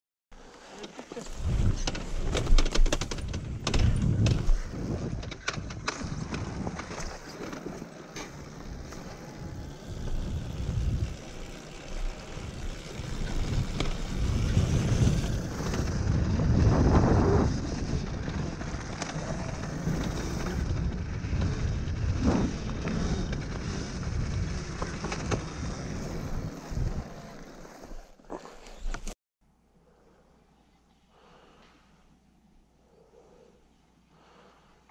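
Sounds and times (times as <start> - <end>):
dirt bike engine: 1.2 - 29.2
wind noise on microphone: 1.3 - 7.2, 9.4 - 27.4.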